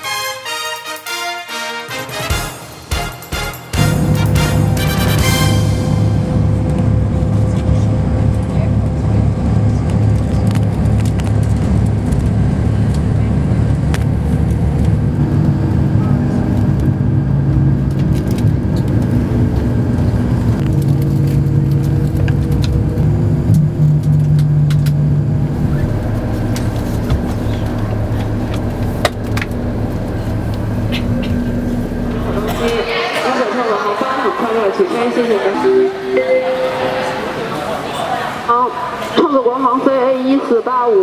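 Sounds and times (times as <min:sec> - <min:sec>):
engine and road rumble: 0:02.9 - 0:33.2
hum shifting in pitch: 0:03.7 - 0:39.5.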